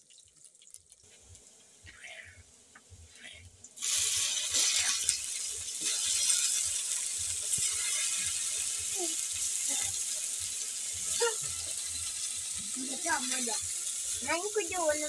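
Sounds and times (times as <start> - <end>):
onions sizzling in a pot: 0.0 - 15.0.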